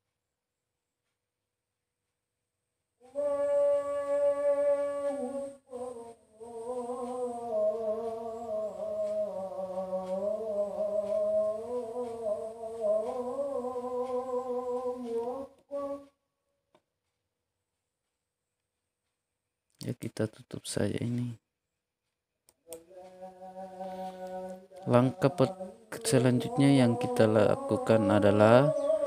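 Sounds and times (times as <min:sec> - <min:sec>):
person humming: 0:03.0 - 0:16.1, 0:22.7 - 0:29.0.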